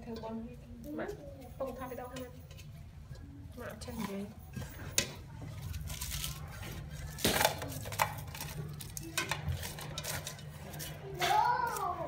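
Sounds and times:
stalks clattering in metal pot: 7.2 - 11.4.

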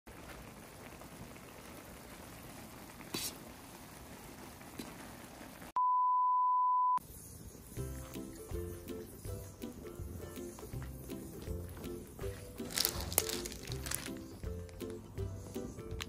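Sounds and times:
music: 7.5 - 16.0.

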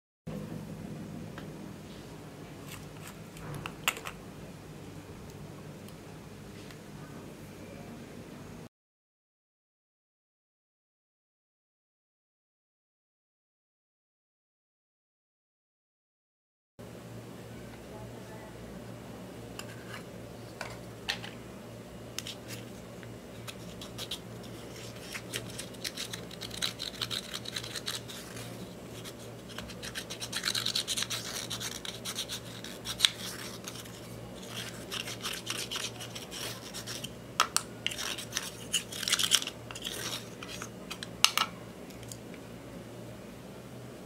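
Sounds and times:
tool scraping eyeshadow: 23.3 - 41.5.

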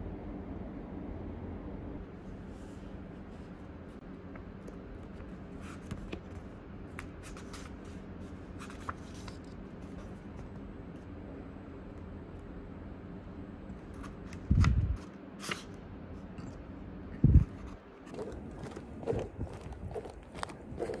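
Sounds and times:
low hum: 0.0 - 5.6.

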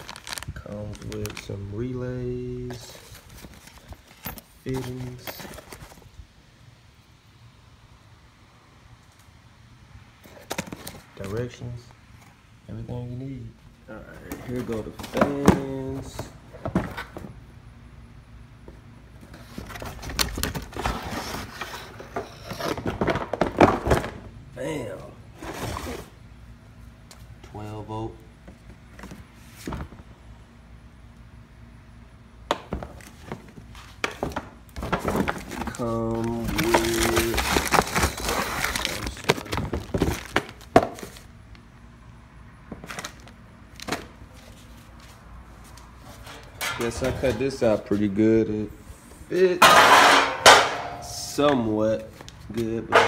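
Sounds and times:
cardboard boxes handled and opened: 0.0 - 1.6, 2.6 - 6.1, 14.1 - 17.4, 19.2 - 24.2, 25.4 - 26.2, 32.7 - 41.3
plastic bags crinkling: 0.0 - 1.7, 34.8 - 41.3.

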